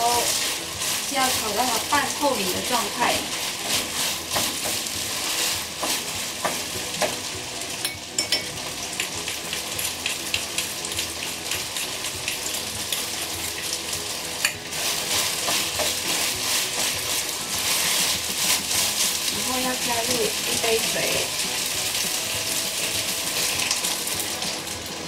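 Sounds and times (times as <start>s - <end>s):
wooden spatula scraping pan: 0.0s - 7.2s, 14.7s - 24.2s
rice sizzling in frying pan: 0.0s - 25.0s.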